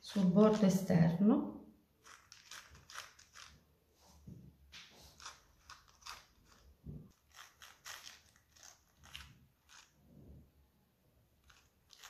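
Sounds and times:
pastry brush dabbing: 0:00.0 - 0:01.1.

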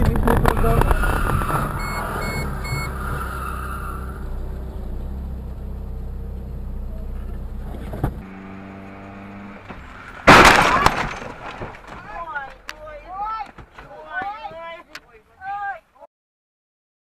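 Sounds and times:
car engine and road rumble: 0:00.0 - 0:15.3
high electronic beeps: 0:01.0 - 0:03.1.

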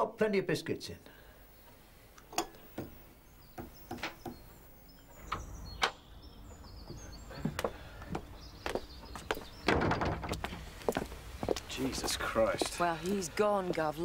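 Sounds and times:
house door opening: 0:09.6 - 0:10.6
footsteps: 0:10.2 - 0:14.0.

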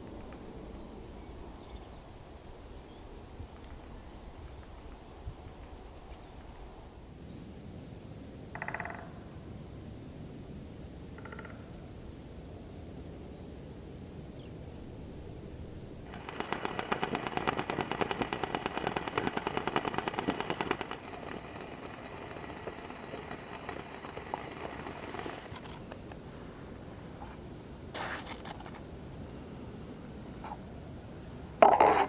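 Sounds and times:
water boiling crackling rattle: 0:16.1 - 0:26.2
brief scrape: 0:28.0 - 0:29.2.

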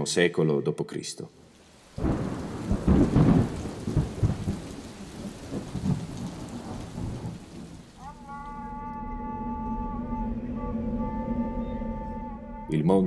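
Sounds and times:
rain: 0:01.3 - 0:08.6
rolling thunder: 0:01.6 - 0:08.0
sustained musical tone: 0:08.1 - 0:13.0.

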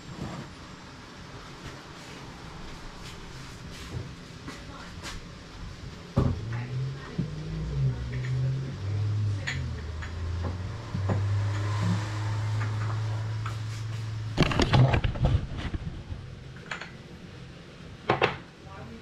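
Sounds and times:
low hum shifting pitch: 0:05.8 - 0:14.7
kitchenware clattering: 0:09.4 - 0:10.2.

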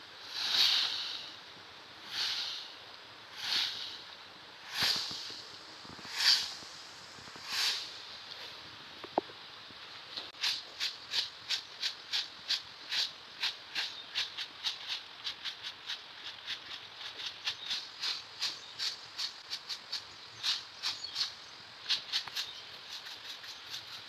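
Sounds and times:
stiff broom sweeping concrete: 0:00.0 - 0:01.4, 0:02.0 - 0:08.6, 0:10.3 - 0:21.3
dry leaves scraping: 0:04.7 - 0:08.0.

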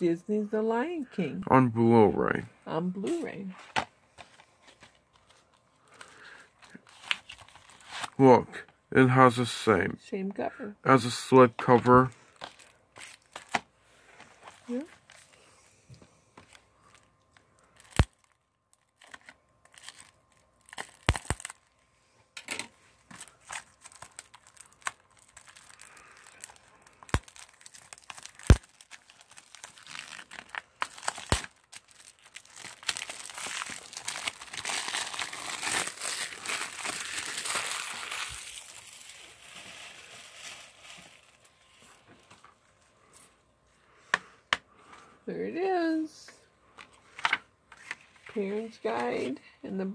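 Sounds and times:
plastic wrap crinkling: 0:03.2 - 0:08.2, 0:11.6 - 0:15.5, 0:16.4 - 0:21.8, 0:22.4 - 0:42.7.

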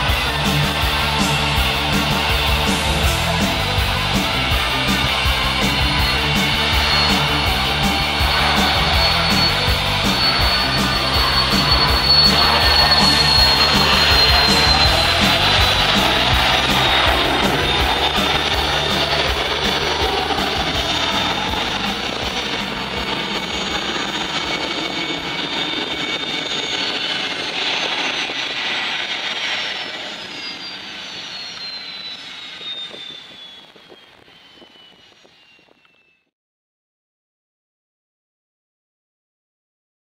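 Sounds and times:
rock music beat: 0:00.0 - 0:24.6
jet engine noise with turbine whine: 0:00.0 - 0:36.3.

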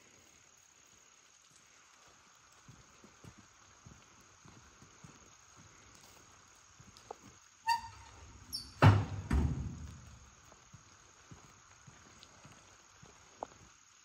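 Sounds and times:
insects chirring: 0:00.0 - 0:14.0
bin lid squeak: 0:07.7 - 0:09.3
bin lid banging shut: 0:08.6 - 0:10.0.

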